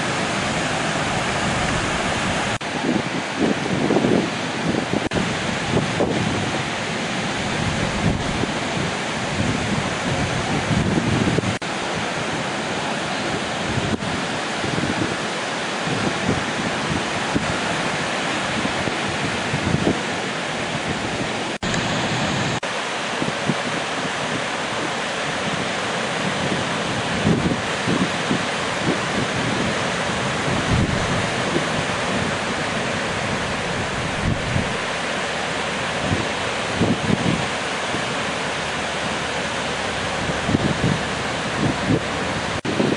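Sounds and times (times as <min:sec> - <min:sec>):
wind buffeting microphone: 0:00.0 - 0:12.5, 0:13.2 - 0:22.6, 0:23.2 - 0:42.9
breaking surf: 0:00.0 - 0:42.9.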